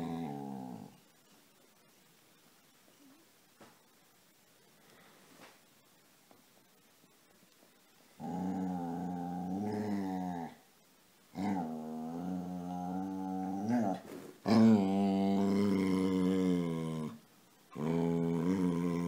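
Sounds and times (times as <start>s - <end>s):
dog growling moans: 0.0s - 1.0s, 8.2s - 10.6s, 11.3s - 19.0s.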